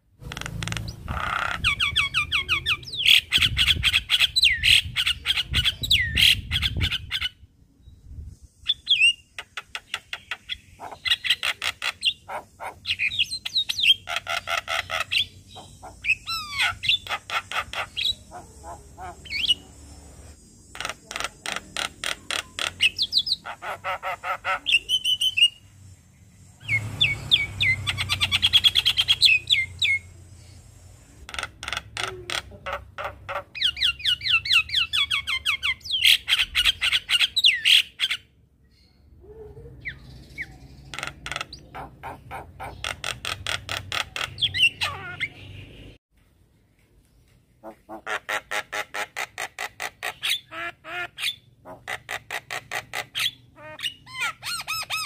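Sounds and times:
myna bird singing: 0:00.0 - 0:46.0, 0:47.0 - 0:55.0.

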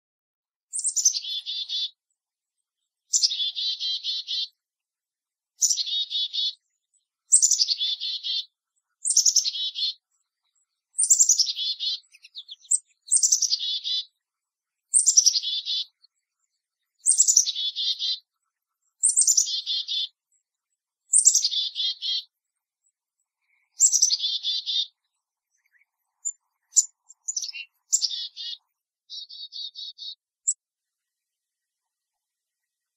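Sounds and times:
chickadee calling: 0:00.7 - 0:02.0, 0:03.1 - 0:04.6, 0:05.6 - 0:06.6, 0:07.3 - 0:10.0, 0:11.0 - 0:14.1, 0:14.9 - 0:16.0, 0:17.0 - 0:18.2, 0:19.0 - 0:20.2, 0:21.1 - 0:22.3, 0:23.6 - 0:25.0, 0:25.6 - 0:30.2.

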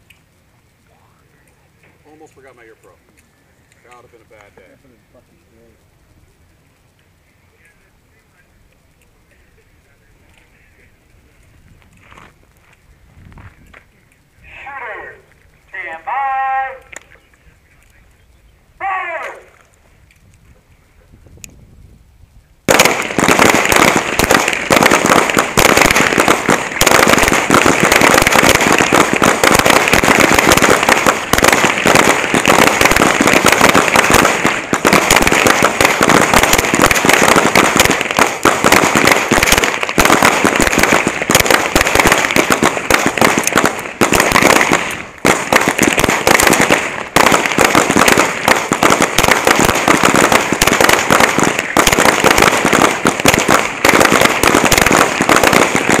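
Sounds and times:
pistols firing rapidly: 0:22.7 - 0:56.0.

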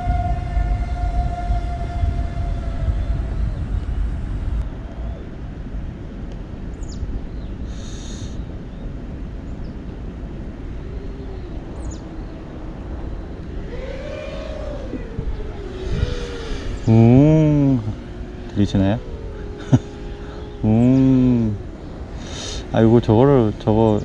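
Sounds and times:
quadcopter motors rumbling: 0:00.0 - 0:05.2, 0:07.7 - 0:08.5, 0:10.0 - 0:24.0
person talking: 0:16.9 - 0:18.0, 0:20.6 - 0:21.6.

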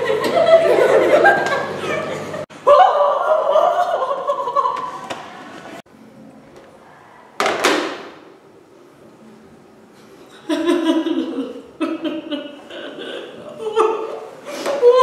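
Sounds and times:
person laughing: 0:10.4 - 0:15.0.

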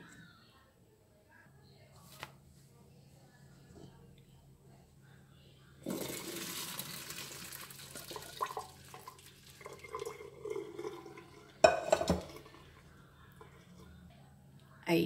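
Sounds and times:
water pouring through strainer: 0:05.8 - 0:12.7
water gurgling and dribbling: 0:05.9 - 0:12.6.

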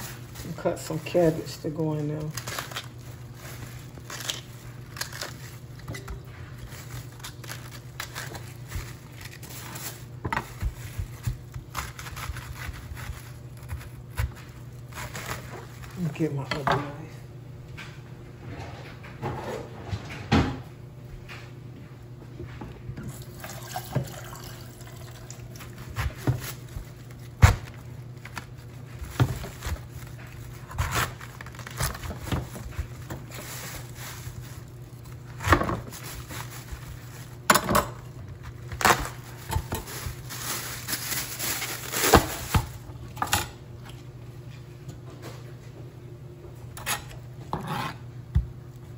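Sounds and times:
knife crunching through cabbage: 0:02.2 - 0:16.0, 0:25.1 - 0:43.3.

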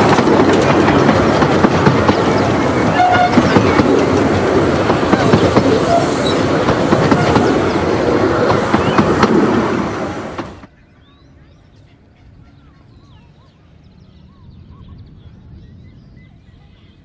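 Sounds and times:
train carriages clattering: 0:00.0 - 0:10.7.

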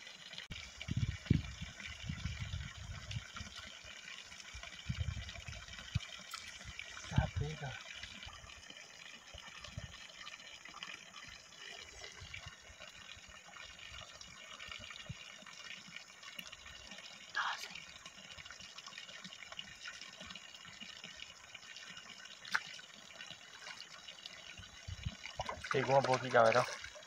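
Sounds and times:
water trickling: 0:00.0 - 0:27.0.

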